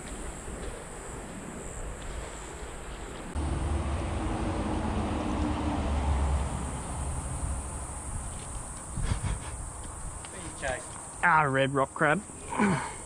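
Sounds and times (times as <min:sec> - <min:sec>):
road traffic rumble: 0:03.1 - 0:11.2
passing vehicle engine hum: 0:03.3 - 0:08.5.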